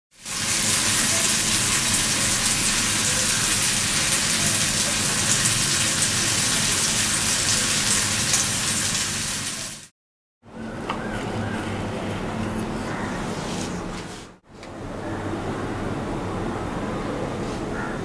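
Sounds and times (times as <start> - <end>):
fish sizzling in hot oil: 0.2 - 9.9.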